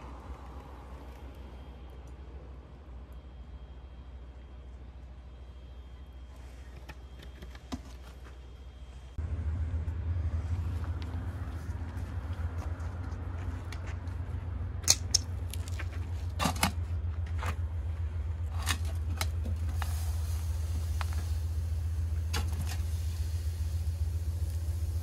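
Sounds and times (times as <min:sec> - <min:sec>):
low rumble: 0:00.0 - 0:06.3, 0:08.7 - 0:25.0
sand pouring hiss: 0:19.6 - 0:25.0.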